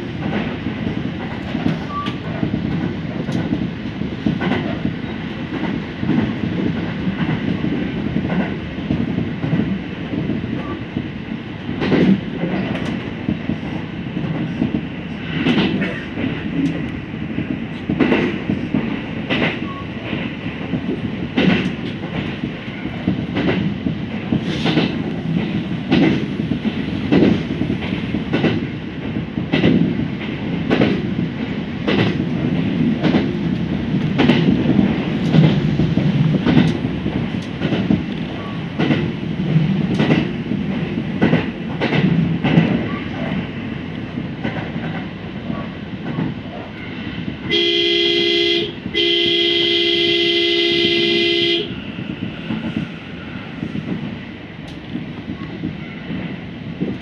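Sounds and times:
train wheels clacking over rail joints: 0:00.0 - 0:11.0, 0:11.6 - 0:47.8
train rumble: 0:00.0 - 0:57.0
train horn blasts: 0:47.5 - 0:51.8.

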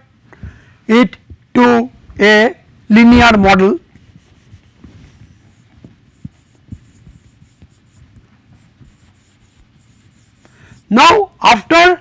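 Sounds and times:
eraser wiping whiteboard: 0:03.9 - 0:11.3
marker writing on whiteboard: 0:04.0 - 0:11.4.

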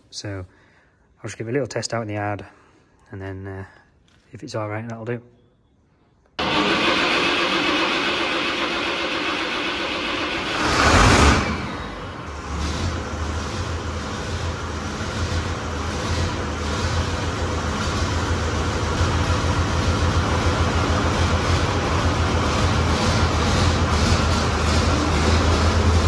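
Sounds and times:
tractor engine idling: 0:06.4 - 0:26.0.

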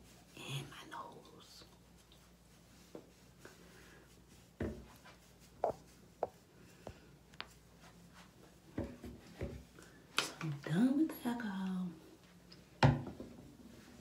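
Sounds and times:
soft scratchy rubbing: 0:00.0 - 0:09.7.

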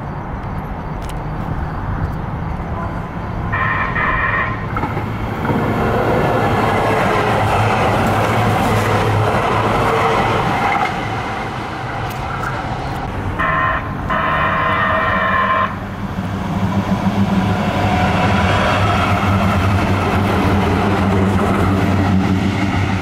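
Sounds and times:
approaching train rumble: 0:00.0 - 0:23.0
light rail train passing: 0:00.0 - 0:23.0
train horn blasts: 0:02.8 - 0:04.7, 0:13.4 - 0:15.8.

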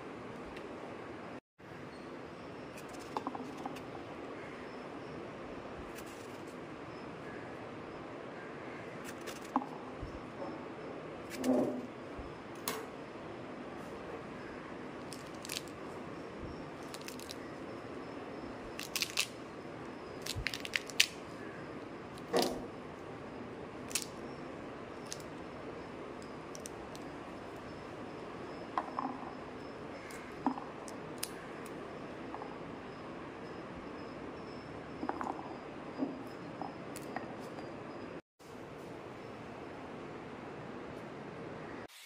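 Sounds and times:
fruit rind cracking and tearing: 0:16.8 - 0:17.4, 0:18.8 - 0:19.4, 0:20.2 - 0:21.2.

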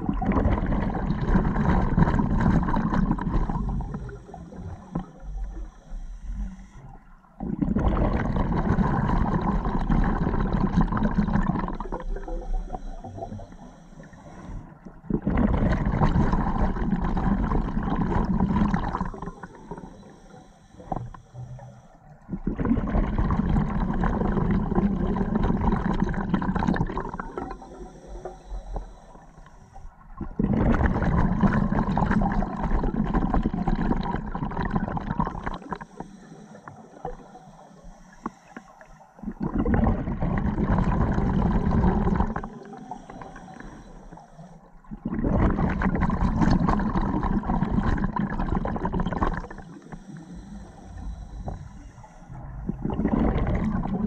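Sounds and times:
exhaled bubbles rushing: 0:00.0 - 0:05.2, 0:07.4 - 0:13.4, 0:14.9 - 0:20.0, 0:22.3 - 0:27.7, 0:30.1 - 0:36.0, 0:39.2 - 0:43.4, 0:44.8 - 0:49.9, 0:52.3 - 0:54.0
regulator hissing on inhale: 0:03.5 - 0:07.1, 0:11.7 - 0:14.9, 0:19.1 - 0:22.2, 0:27.2 - 0:30.1, 0:35.6 - 0:39.3, 0:42.2 - 0:44.8, 0:49.4 - 0:52.7.

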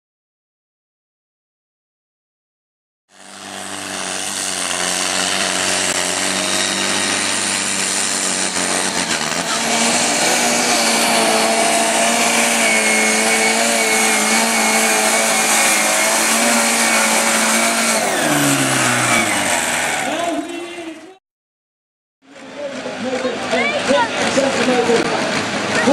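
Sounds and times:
tractor engine at full throttle: 0:03.1 - 0:21.2.

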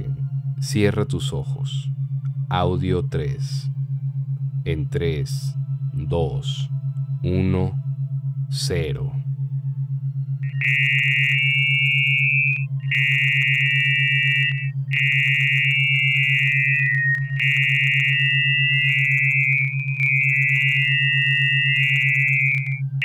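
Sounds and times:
pulsing low buzzing tone: 0:00.0 - 0:23.0
higher warbling tone: 0:10.4 - 0:23.0.

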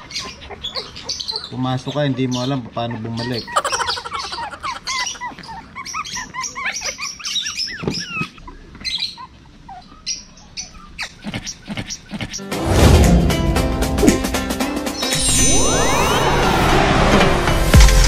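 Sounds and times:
puppies whimpering and squeaking: 0:03.2 - 0:08.4, 0:09.0 - 0:10.2.

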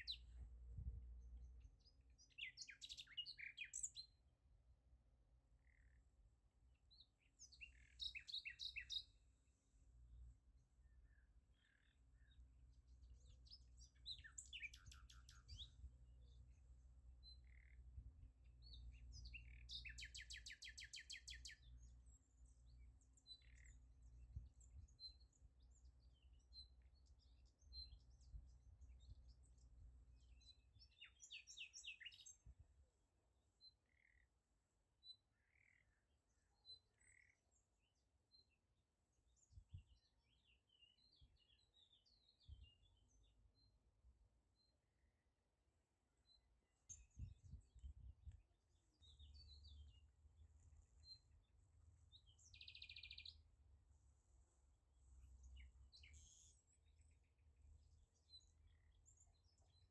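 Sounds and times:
small birds chirping: 0:00.0 - 0:04.5, 0:05.5 - 0:45.1, 0:45.8 - 0:59.9
bird trills: 0:14.1 - 0:15.8.

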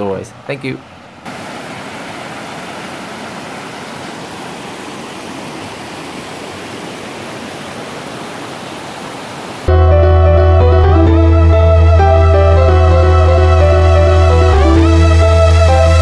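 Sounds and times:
waterfall roaring: 0:01.2 - 0:09.7.

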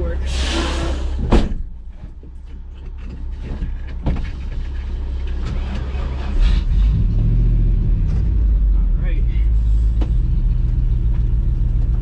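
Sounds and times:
truck engine revving: 0:04.8 - 0:12.0.

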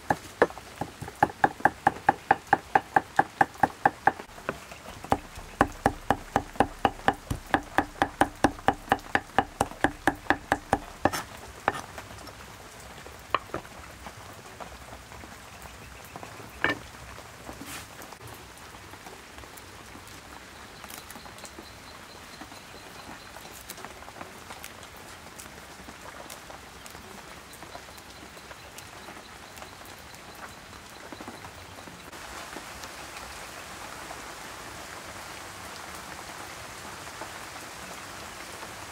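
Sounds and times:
cleaver chopping on wooden block: 0:00.0 - 0:11.8, 0:13.4 - 0:13.7.

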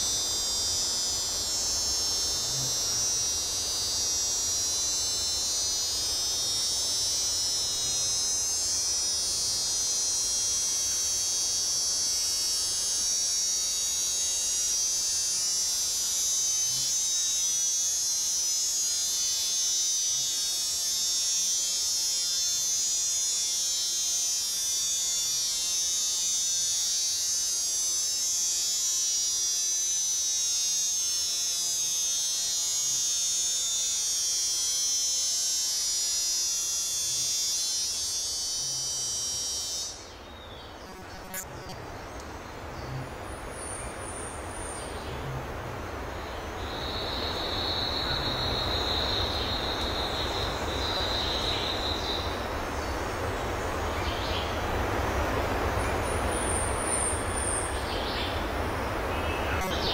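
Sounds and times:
high-pitched buzzing drone: 0:00.0 - 0:59.9.

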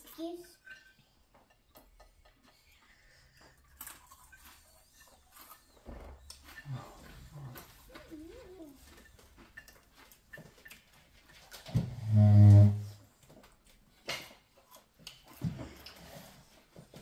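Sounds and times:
cutlery clicking on plates: 0:00.6 - 0:05.2
child's wavering vocal sound: 0:07.9 - 0:09.0.

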